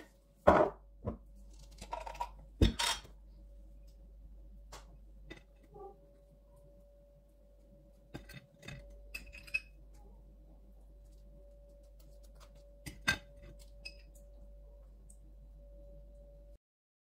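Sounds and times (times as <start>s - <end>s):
faint steady hum: 0.0s - 16.6s
knife clinking on plate and jar: 8.2s - 9.7s.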